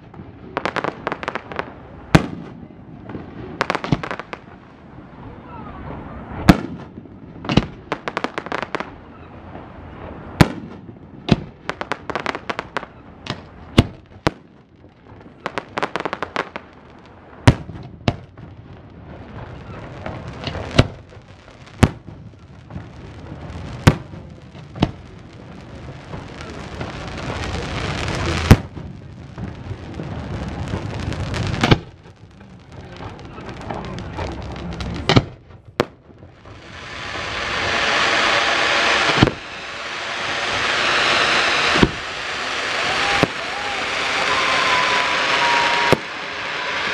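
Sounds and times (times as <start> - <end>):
rapid firework crackling: 0.0 - 5.4, 6.3 - 9.1, 10.4 - 46.9
hissing rumble: 18.6 - 46.9
firework shells bursting: 33.0 - 46.9.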